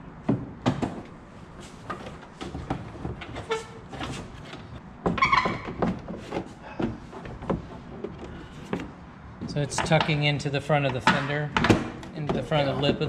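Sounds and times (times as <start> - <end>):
plastic squeak: 3.3 - 6.3.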